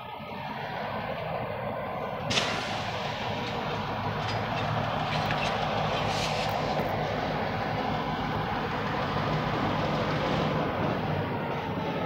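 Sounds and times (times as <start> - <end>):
diesel locomotive engines droning: 0.0 - 12.0.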